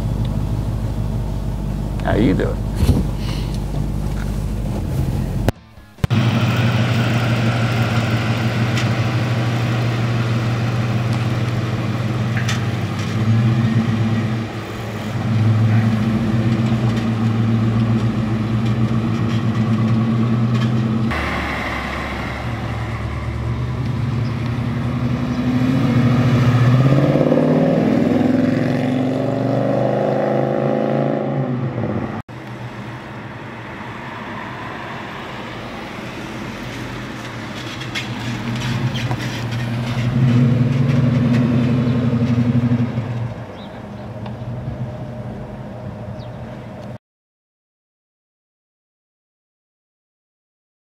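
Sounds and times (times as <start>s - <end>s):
car engine rumbling and revving: 0.0s - 47.0s
car accelerating away: 4.5s - 32.8s, 37.6s - 45.6s.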